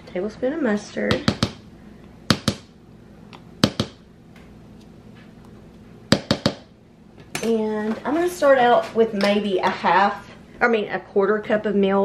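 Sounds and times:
plastic spoon tapping a bowl: 6.1s - 6.7s.

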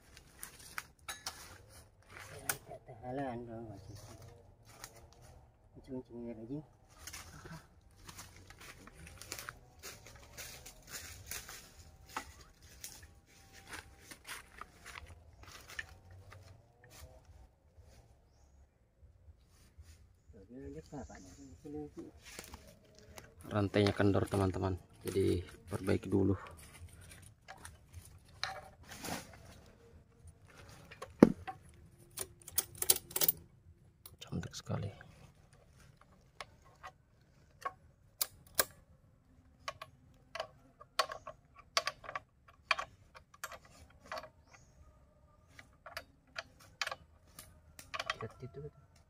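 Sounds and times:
rustling in dry leaves: 0.0s - 2.5s, 6.8s - 18.1s, 24.4s - 31.0s
light clicks on chainsaw chain: 39.6s - 44.7s, 45.5s - 49.0s.

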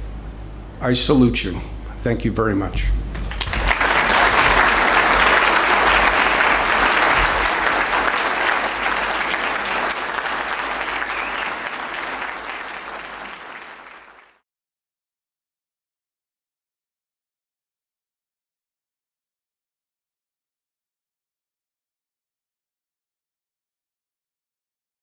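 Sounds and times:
audience applauding: 3.2s - 14.4s.

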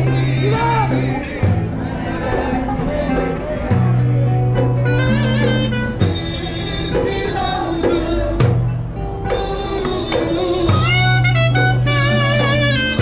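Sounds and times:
light percussion: 0.0s - 13.0s
long held bass notes: 0.0s - 13.0s
bending voice-like melody: 2.3s - 6.9s.

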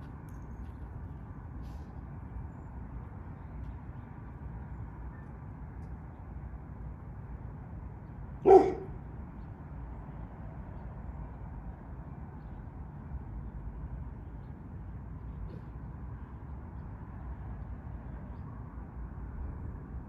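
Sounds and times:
dog barking: 8.4s - 9.0s.

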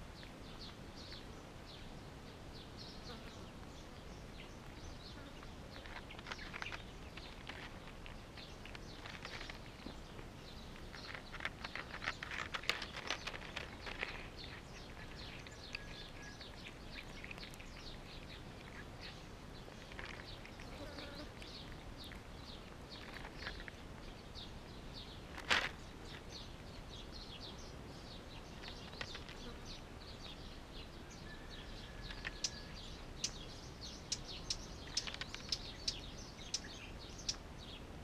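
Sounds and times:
birds chirping: 0.0s - 38.0s
cats chewing wet food: 5.7s - 24.1s.

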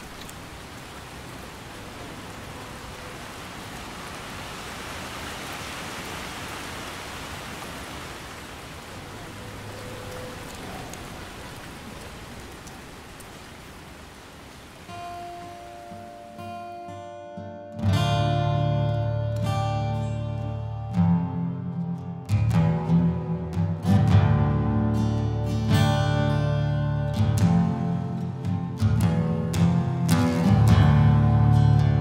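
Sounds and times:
steady rain falling: 0.0s - 16.9s.

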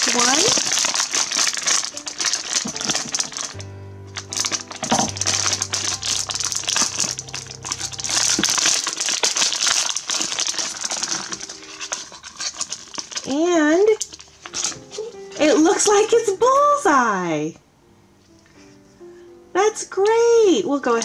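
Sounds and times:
plastic wrapper crinkling: 0.0s - 16.8s
low steady music notes: 1.9s - 9.9s, 13.3s - 20.9s.

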